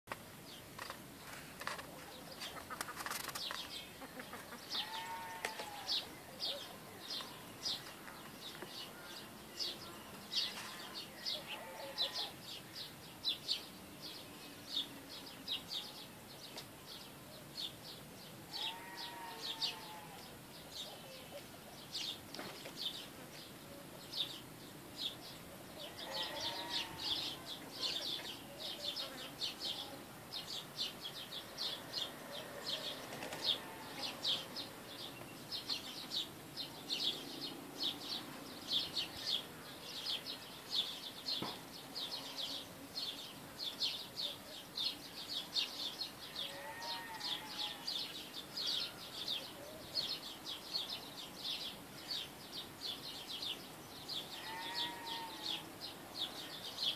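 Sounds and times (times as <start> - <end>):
small birds chirping: 0.0 - 56.9
farm animal calling: 4.0 - 6.8, 10.5 - 12.4, 18.5 - 20.3, 25.7 - 30.0, 32.1 - 34.6, 46.3 - 49.0, 54.2 - 55.7.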